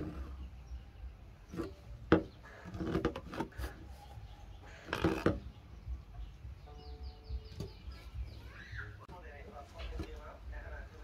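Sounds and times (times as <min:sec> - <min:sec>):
plastic pipe knocking and rubbing: 0:01.5 - 0:04.2, 0:04.8 - 0:05.5.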